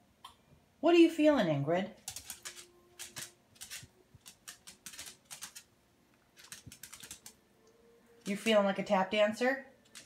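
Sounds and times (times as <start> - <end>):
dog claws tapping on wooden floor: 2.0 - 5.6, 6.4 - 7.4.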